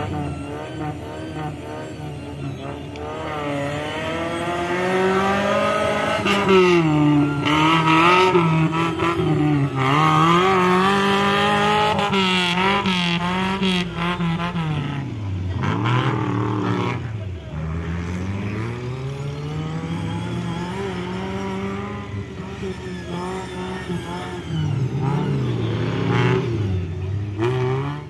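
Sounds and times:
buggy engine revving unevenly: 0.0s - 28.0s.

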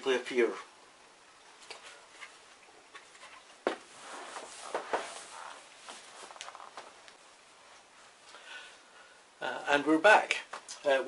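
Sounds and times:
shuffling: 1.6s - 8.4s
footsteps: 3.0s - 7.2s.

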